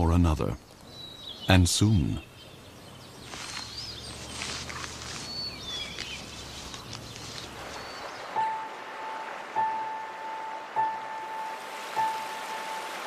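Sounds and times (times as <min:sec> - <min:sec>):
soft outdoor hiss: 0:00.0 - 0:13.0
held musical tone: 0:08.4 - 0:13.0.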